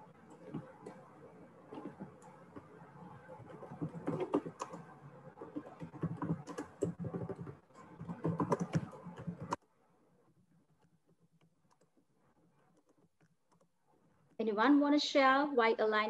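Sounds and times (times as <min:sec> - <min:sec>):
keyboard typing clicks: 0:03.5 - 0:09.6.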